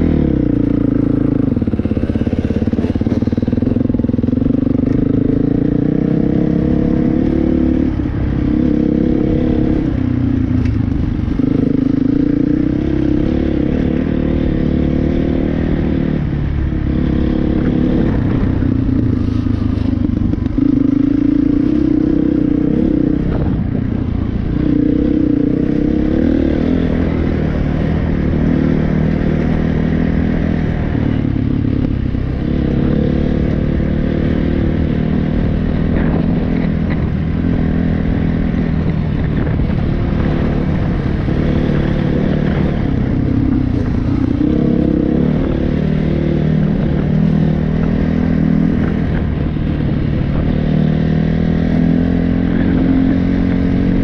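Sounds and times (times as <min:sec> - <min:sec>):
dirt bike engine revving: 0:00.0 - 0:10.0, 0:39.2 - 0:49.3.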